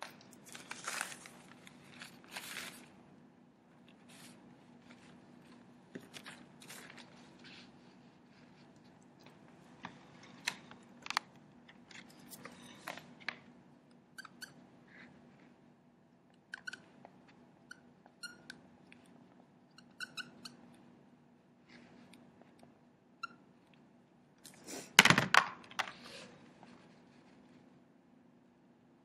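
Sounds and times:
marker squeaking on whiteboard: 14.2 - 15.2, 16.5 - 16.9, 17.6 - 18.6, 19.8 - 20.6, 23.2 - 23.4.

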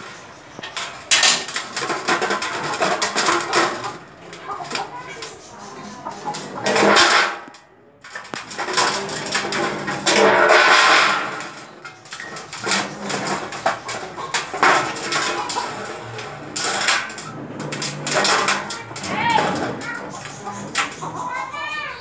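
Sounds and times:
metallic clanks of a plate: 5.9 - 7.6.

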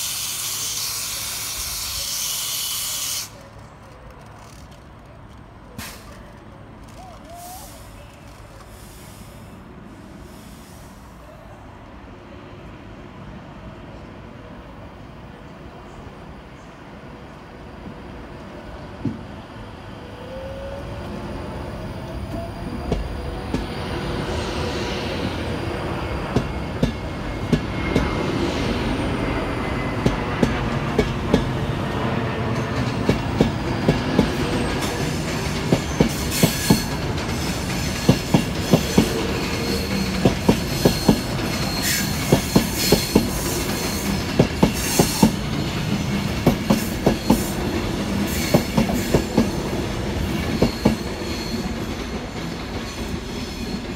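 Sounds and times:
electric train whine: 0.0 - 3.6, 17.2 - 53.9.

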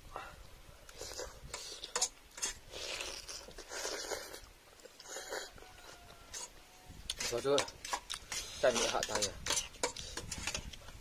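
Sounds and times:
people slurping noodles: 0.9 - 5.6.

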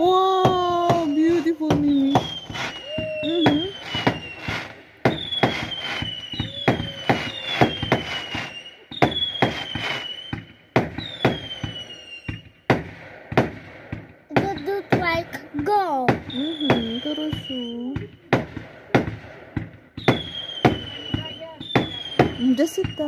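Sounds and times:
fireworks bangs and crackles: 0.0 - 23.0
firework whistles falling in pitch: 0.8 - 12.6, 16.2 - 18.1, 20.0 - 23.0.

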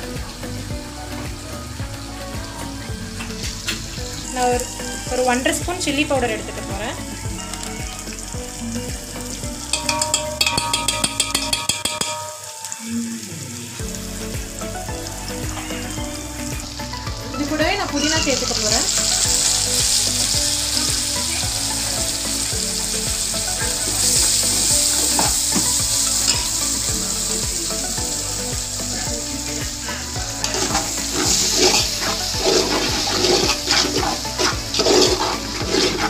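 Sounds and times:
onions sizzling in hot oil: 0.0 - 36.0
metal spoon scraping a pot: 9.8 - 12.5, 30.4 - 36.0.

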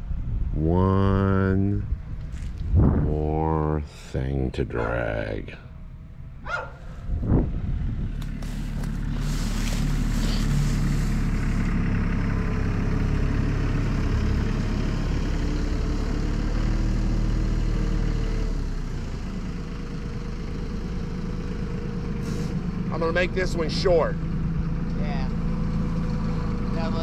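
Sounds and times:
vehicle engine humming: 0.0 - 27.0.

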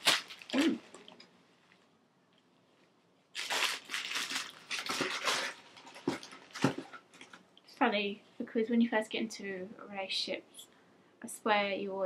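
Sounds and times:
packaging crinkling and rustling: 0.0 - 1.2, 3.3 - 7.4.

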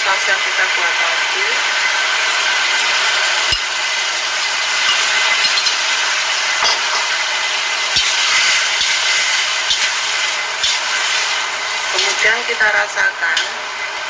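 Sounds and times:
vegetables sizzling in hot oil: 0.0 - 14.0
metal ladle knocking wok: 6.6 - 7.2.

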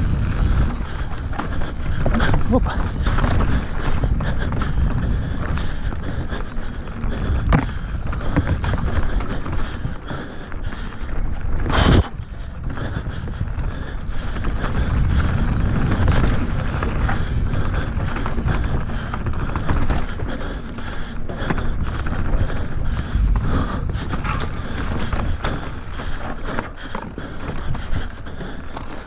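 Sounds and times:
wind buffeting microphone: 0.0 - 28.8
tyres rolling over stones: 14.4 - 29.0.

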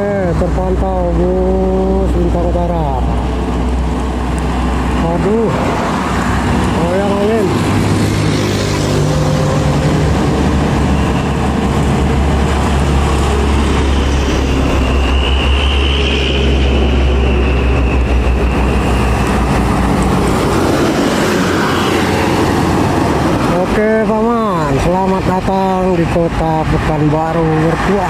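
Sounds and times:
coach passing by: 0.0 - 28.0
diesel road traffic: 0.0 - 28.0
faint high whine: 13.2 - 19.6.

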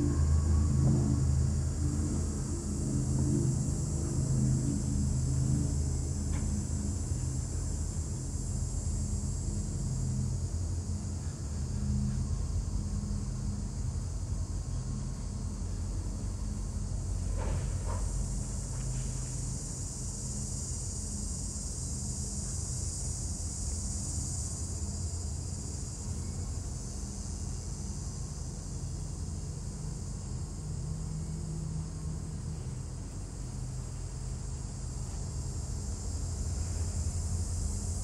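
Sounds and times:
locomotive engine running: 0.0 - 9.2
crickets chirring: 0.0 - 38.0.

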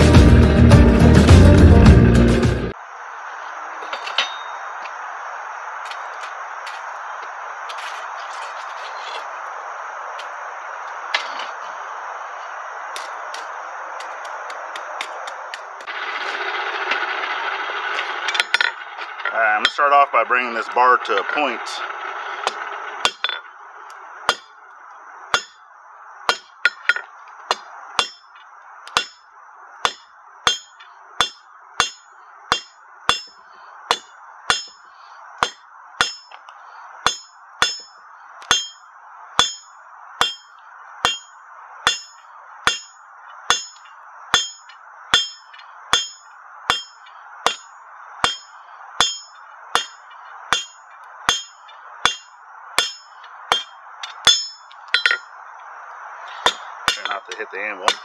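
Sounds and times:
hammer striking steel on anvil: 3.9 - 4.7, 19.6 - 20.0, 22.4 - 23.5, 24.3 - 24.6, 25.3 - 25.6, 26.3 - 28.3, 28.9 - 34.8, 35.4 - 36.4, 37.0 - 55.3, 56.4 - 58.0.

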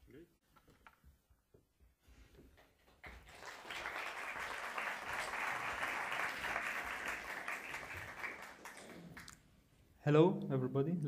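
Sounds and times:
audience applauding: 3.0 - 9.4.

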